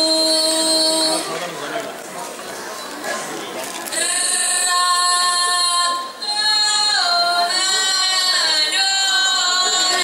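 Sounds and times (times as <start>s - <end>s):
women singing long held notes: 4.0s - 10.0s.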